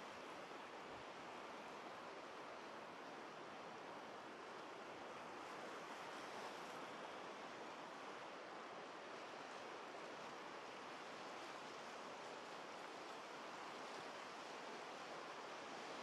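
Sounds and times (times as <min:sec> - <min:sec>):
small waves washing on sand: 0:00.0 - 0:16.0.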